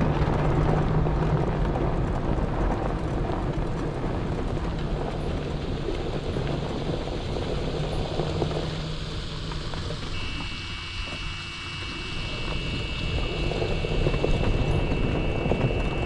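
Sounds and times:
low hum: 0.0 - 16.0
slow vehicle rumble and wind: 0.0 - 16.0
thin high steady tones: 10.1 - 16.0.

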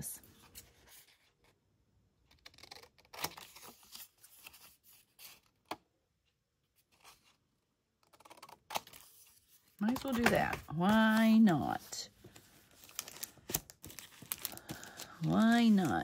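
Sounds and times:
paper rustles and scrapes: 8.2 - 16.0.

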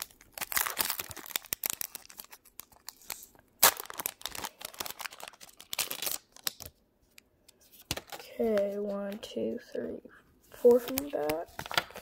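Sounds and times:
foil wrapper crinkling and tearing: 0.0 - 6.8.

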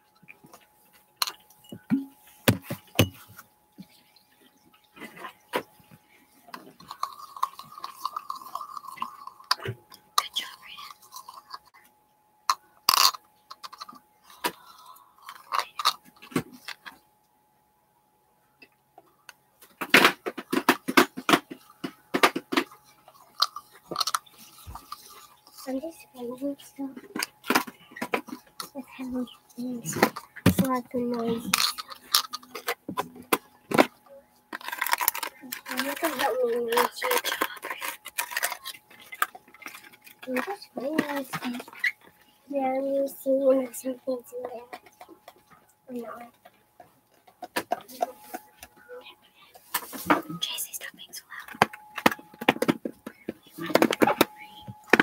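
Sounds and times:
objects tapping and clicking: 0.2 - 4.0, 6.5 - 11.7, 12.5 - 17.0, 19.6 - 25.8, 26.9 - 42.2, 46.3 - 48.7, 51.3 - 55.0
plastic packaging crinkling: 34.5 - 42.0.

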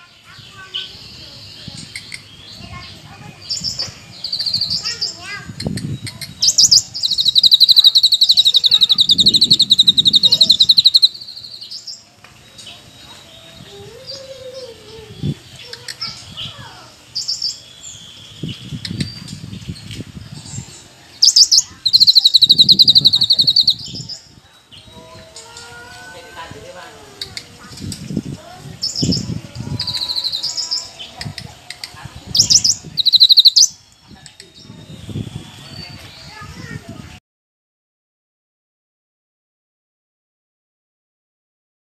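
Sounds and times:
bird chirps: 0.0 - 25.8, 28.8 - 36.4
bird singing rattling trill: 0.2 - 26.2, 28.8 - 36.5.

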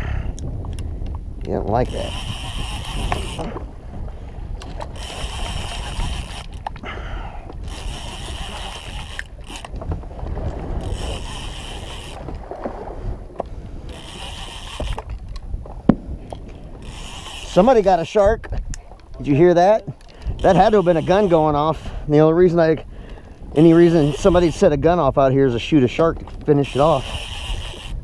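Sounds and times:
low wind rumble: 0.0 - 28.0
fishing reel cranking: 0.3 - 3.7, 4.5 - 12.5, 13.8 - 15.5, 16.3 - 18.4, 19.2 - 21.8, 23.2 - 24.9, 25.9 - 28.0.

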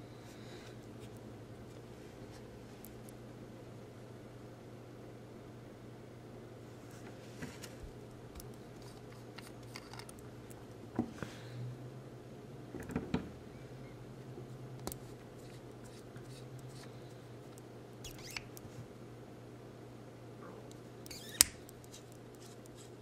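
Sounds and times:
low steady hum: 0.0 - 23.0
fingers clicking and rubbing on pen: 21.1 - 23.0.

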